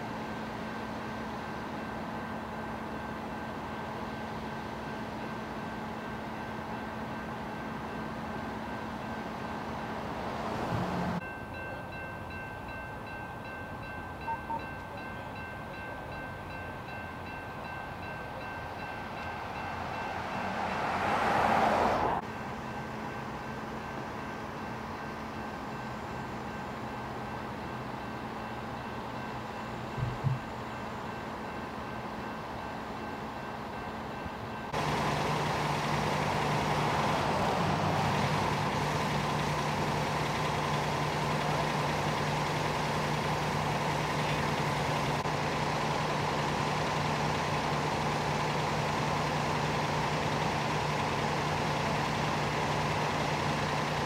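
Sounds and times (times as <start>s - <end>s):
heavy diesel engines idling: 0.0s - 54.0s
strong engine drone: 34.7s - 54.0s.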